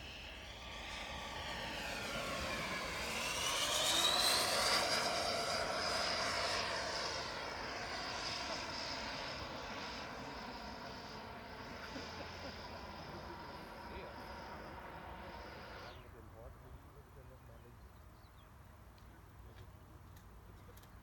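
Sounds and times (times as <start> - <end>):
model jet electric fans whining: 0.0 - 16.2.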